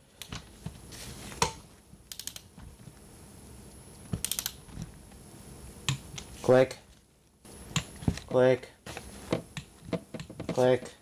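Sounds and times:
ratchet wrench clicking: 2.1s - 2.5s, 4.2s - 4.6s
sharp wrench clicks: 2.1s - 2.5s, 4.2s - 4.6s.

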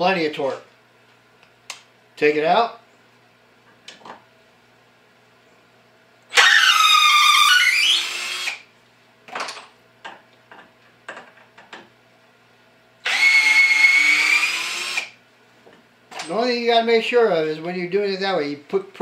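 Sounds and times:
cordless drill driving screw: 6.3s - 8.6s, 13.0s - 15.2s.

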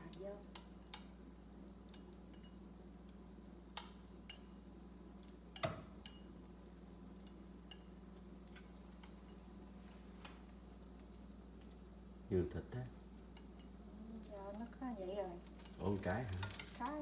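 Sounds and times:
steady low hum: 0.0s - 17.0s
chopsticks tapping on a bowl: 1.9s - 4.6s, 5.2s - 6.3s.

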